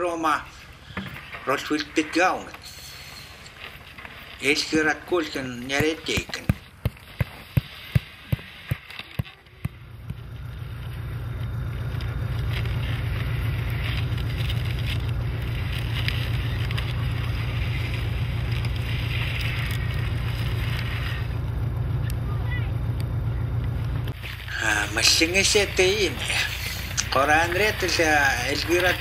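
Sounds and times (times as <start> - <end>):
vehicle engine droning: 0.0 - 29.0
sharp knocks: 5.7 - 10.2.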